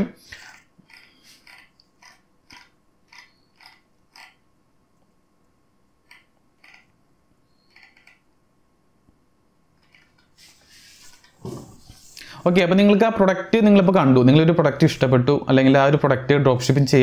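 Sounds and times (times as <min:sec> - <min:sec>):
mouse scroll wheel clicks: 0:00.4 - 0:04.4, 0:06.0 - 0:06.9, 0:07.6 - 0:08.2.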